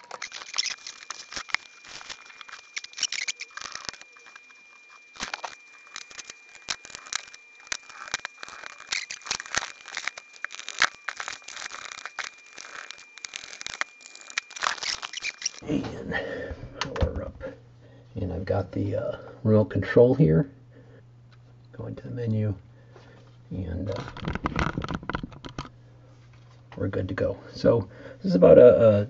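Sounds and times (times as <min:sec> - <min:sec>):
device and cables handled on bench: 0:00.0 - 0:15.6, 0:23.9 - 0:25.7
thin steady high tone: 0:00.0 - 0:19.3.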